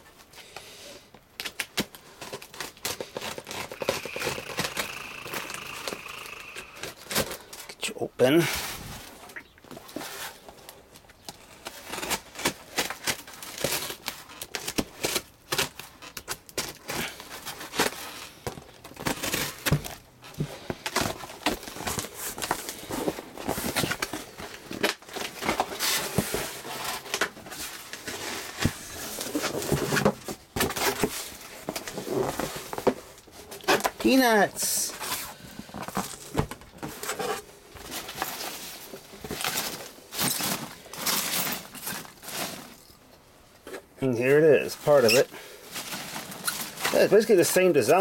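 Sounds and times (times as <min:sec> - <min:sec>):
tape tearing: 0:01.4 - 0:07.5, 0:11.5 - 0:35.2
cardboard flaps rustling: 0:11.6 - 0:42.8.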